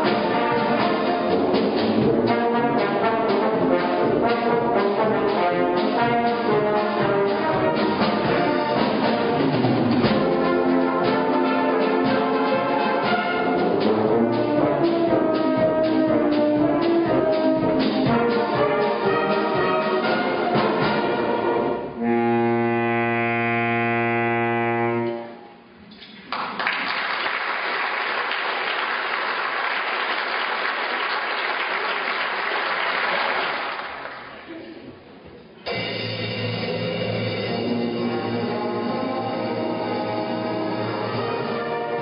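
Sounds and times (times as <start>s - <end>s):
brass band playing: 0.0s - 25.8s, 35.7s - 42.0s
audience applause: 26.2s - 34.5s.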